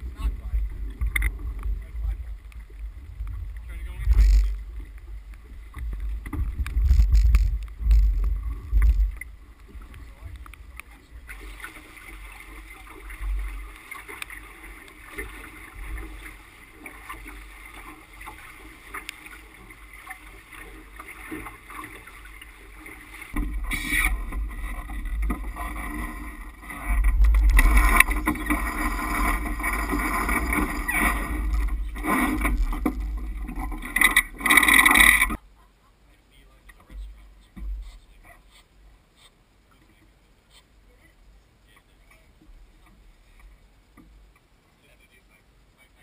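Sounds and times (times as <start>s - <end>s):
wind buffeting microphone: 0.0s - 11.4s
water rushing along hull: 0.0s - 46.0s.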